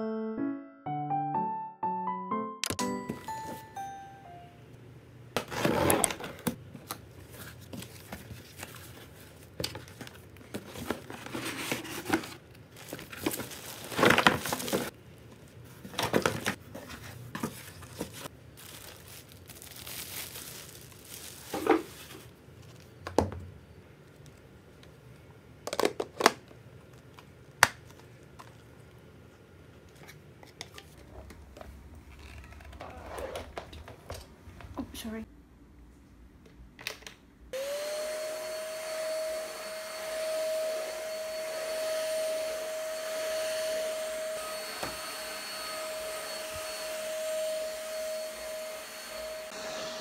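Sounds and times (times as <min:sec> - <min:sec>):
packaging rustling and crinkling: 0:05.4 - 0:23.0
packaging tearing: 0:11.9 - 0:14.9, 0:18.6 - 0:22.2.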